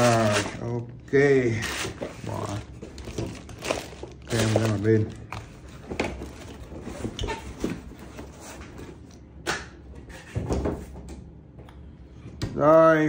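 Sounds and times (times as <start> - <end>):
cardboard and plastic rustling: 0.0 - 9.1.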